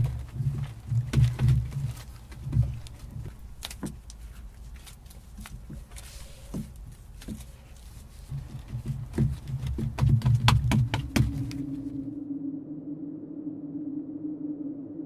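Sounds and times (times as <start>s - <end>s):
hands patting clay: 0.0s - 11.9s.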